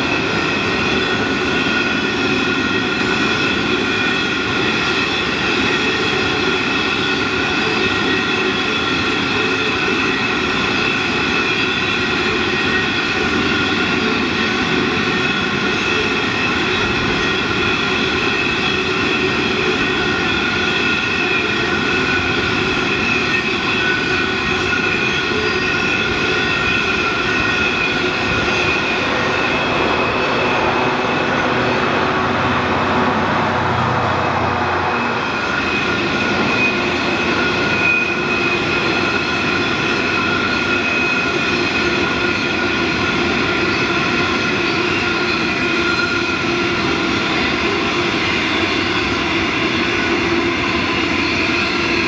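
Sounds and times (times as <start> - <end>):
high-pitched wheel squeal: 0.0 - 52.0
wagon wheels rumbling on rail: 0.0 - 52.0.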